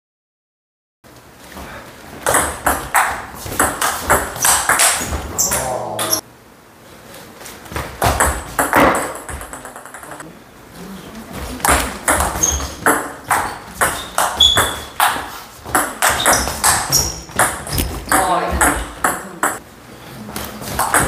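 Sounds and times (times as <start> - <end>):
table tennis ball hits: 2.2 - 6.2, 7.7 - 10.2, 11.6 - 19.6, 20.7 - 21.0.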